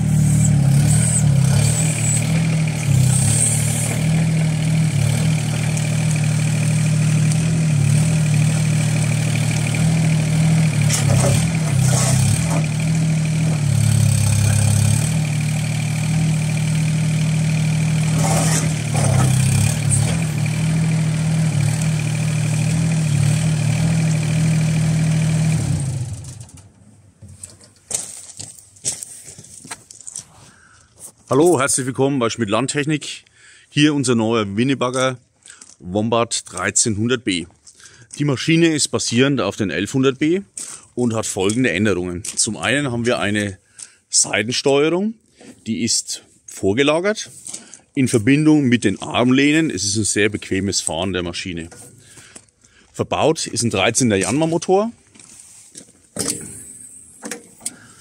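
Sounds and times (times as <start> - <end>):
diesel excavator engine running: 0.0 - 27.9, 49.0 - 55.2, 56.0 - 58.0.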